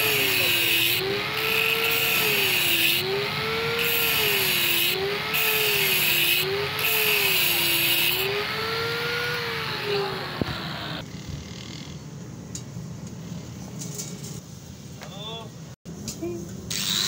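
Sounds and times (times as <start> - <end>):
angle grinder grinding metal pipe: 0.0 - 11.0.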